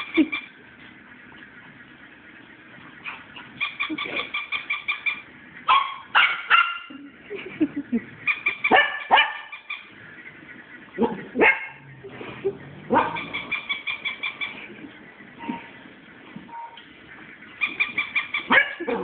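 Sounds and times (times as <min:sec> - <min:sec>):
small dogs barking: 0:03.0 - 0:07.5, 0:08.2 - 0:10.2, 0:10.8 - 0:15.8, 0:17.5 - 0:19.0.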